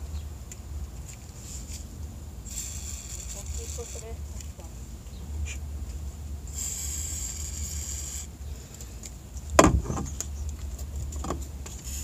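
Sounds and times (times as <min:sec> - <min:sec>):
aerosol spray can hissing: 0:02.4 - 0:04.1, 0:06.5 - 0:08.3
light knocks and clunks: 0:09.5 - 0:10.3
sharp knock: 0:09.6 - 0:10.1.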